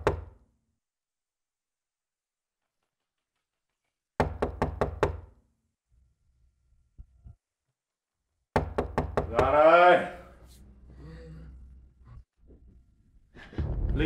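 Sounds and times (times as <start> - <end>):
knocking on wooden door: 0.0 - 0.4, 4.2 - 5.3, 8.6 - 9.6.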